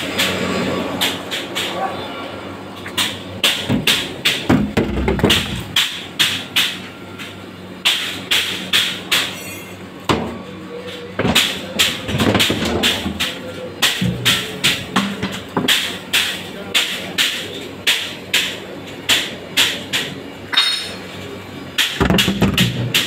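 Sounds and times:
steady low hum: 0.0 - 8.7.

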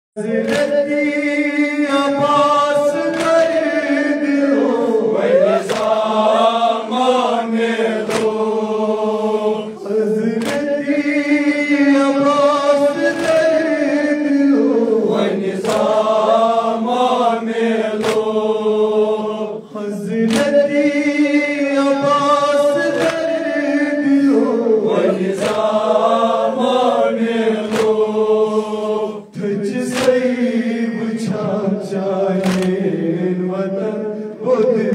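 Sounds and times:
man singing into microphone: 0.2 - 7.6, 9.6 - 17.5, 19.6 - 26.6, 29.2 - 34.9
men chanting in unison: 0.2 - 34.9
hands slapping chests: 0.3 - 1.0, 2.2 - 4.0, 5.2 - 6.5, 7.9 - 8.7, 10.2 - 11.1, 13.0 - 13.6, 15.4 - 16.2, 17.8 - 18.6, 20.2 - 20.8, 22.9 - 23.4, 25.2 - 25.8, 27.6 - 28.2, 29.8 - 30.4, 32.4 - 32.9.

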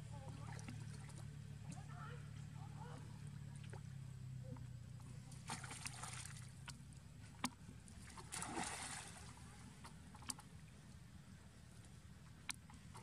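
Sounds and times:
water sloshing and splashing: 0.0 - 2.0, 3.3 - 13.0.

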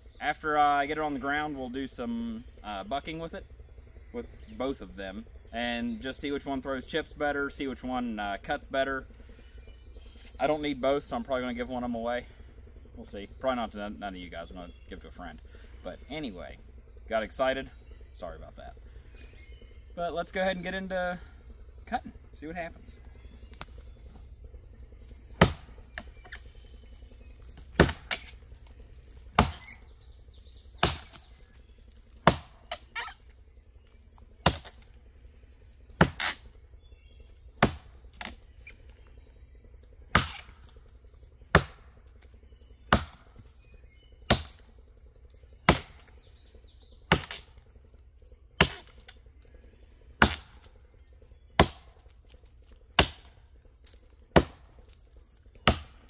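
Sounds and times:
axe chopping into wood: 25.4 - 26.4, 27.6 - 28.4, 29.3 - 29.8, 30.8 - 31.4, 32.2 - 33.2, 34.4 - 34.8, 36.0 - 36.4, 37.6 - 38.4, 40.1 - 40.7, 41.5 - 41.9, 42.9 - 43.5, 44.3 - 44.6, 45.7 - 46.0, 47.1 - 47.6, 48.6 - 49.1, 50.2 - 50.7, 51.6 - 52.1, 53.0 - 53.4, 54.3 - 55.0, 55.6 - 56.0.

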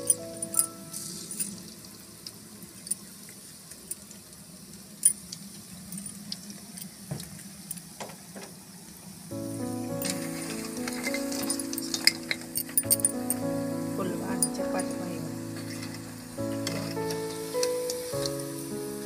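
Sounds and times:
background music: 0.0 - 1.5, 9.3 - 19.0
food sizzling in hot oil: 0.0 - 2.2, 9.4 - 19.0
sharp oil clicks: 15.8 - 18.5.

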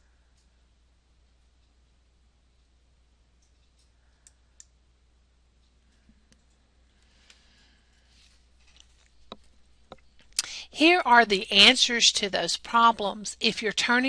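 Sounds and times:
faint clicks: 3.4 - 4.8.

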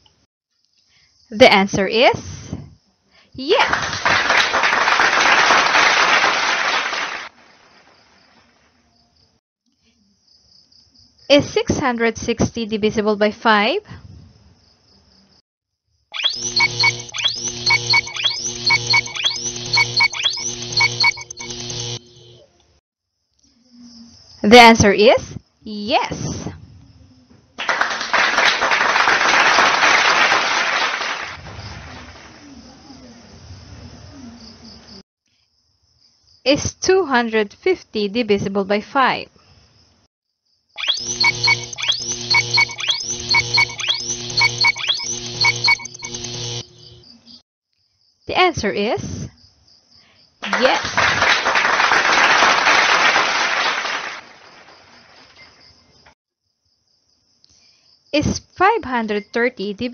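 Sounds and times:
applause: 3.6 - 7.4, 27.6 - 32.4, 50.4 - 55.4
crowd clapping: 3.6 - 7.4, 27.6 - 32.4, 50.4 - 55.2.

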